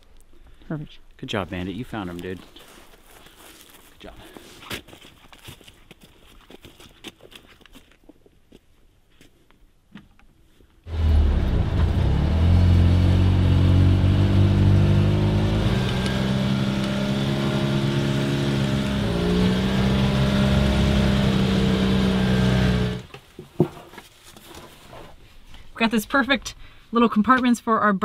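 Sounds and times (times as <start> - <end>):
utility vehicle engine running: 10.9 - 23.1.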